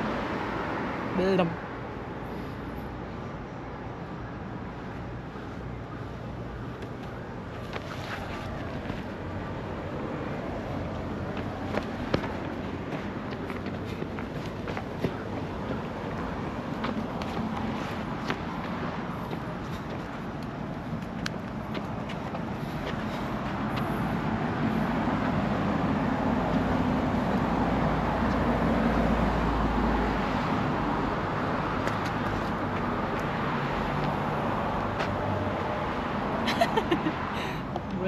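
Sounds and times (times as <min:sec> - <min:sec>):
street traffic: 0:00.0 - 0:38.0.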